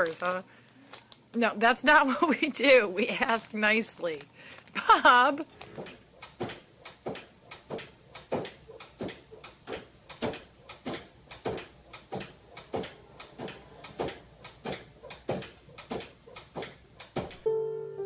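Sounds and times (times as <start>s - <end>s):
pet-door flap clacking: 5.7s - 17.4s.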